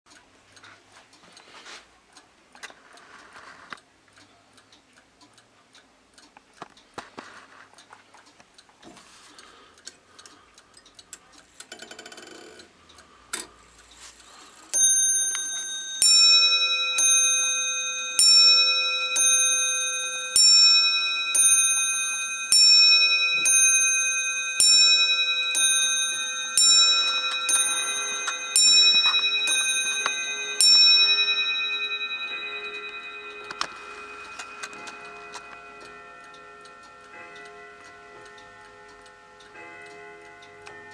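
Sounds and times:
clock ticking: 0.1s - 40.9s
clock bell striking: 14.7s - 40.9s.

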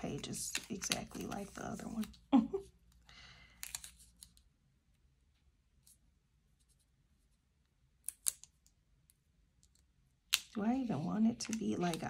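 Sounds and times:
paper rustling: 0.0s - 2.2s.

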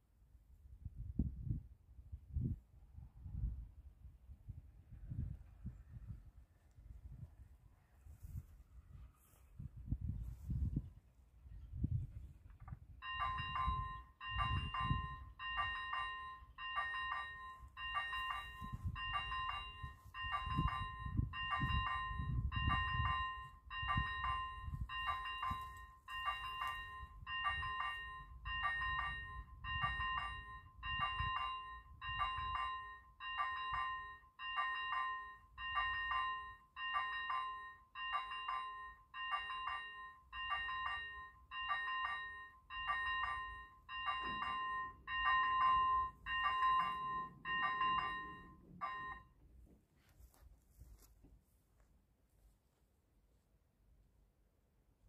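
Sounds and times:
electronic level crossing bell: 13.0s - 49.5s.

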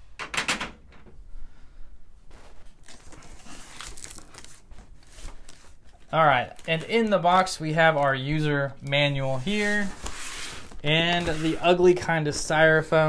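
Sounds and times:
packaging rustling and crinkling: 2.3s - 8.6s, 9.2s - 11.8s.

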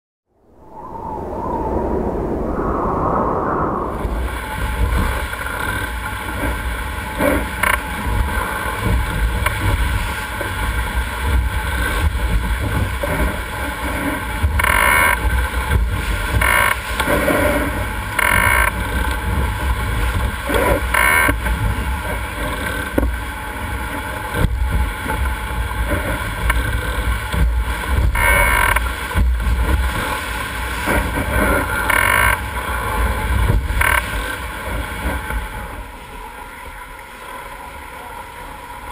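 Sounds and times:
wind buffeting microphone: 0.3s - 7.1s
water rushing along hull: 0.4s - 38.9s.

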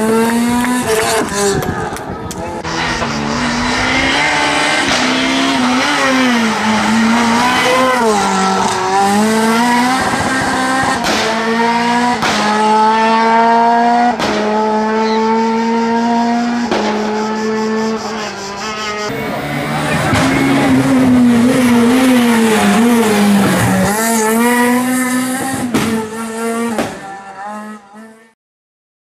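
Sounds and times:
rally car engine revving: 0.0s - 28.4s.

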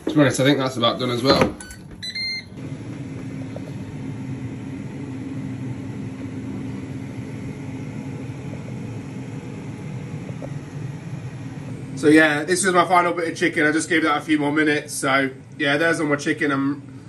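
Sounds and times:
air fryer fan whirring: 0.0s - 17.0s
high electronic beep: 1.6s - 2.5s.

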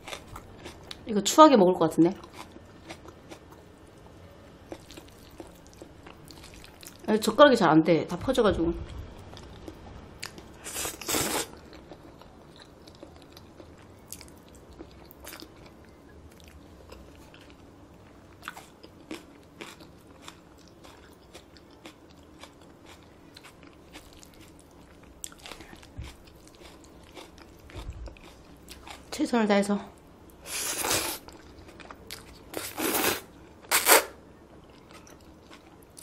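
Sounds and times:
chewing with wet mouth clicks: 4.7s - 7.0s, 11.6s - 17.6s
noodle slurping: 10.6s - 11.5s.

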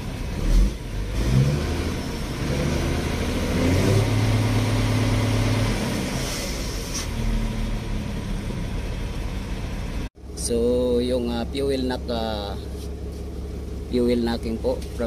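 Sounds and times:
diesel engine revving: 0.0s - 15.0s.

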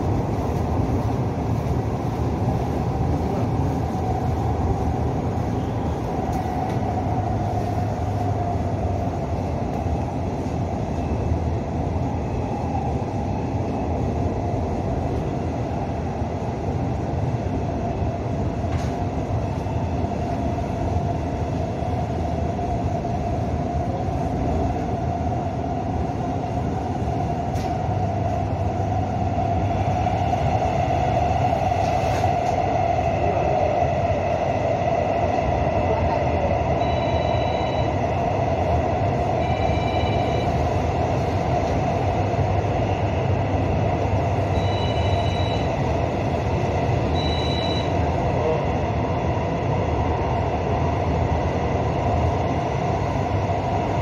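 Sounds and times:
train rolling rumble: 0.0s - 54.0s
short high beeps: 44.6s - 45.7s, 47.1s - 48.0s.

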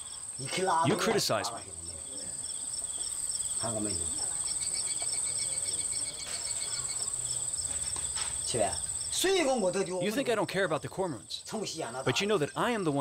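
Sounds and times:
rhythmic pulsing chirp: 0.0s - 7.6s
insects trilling: 0.0s - 13.0s.

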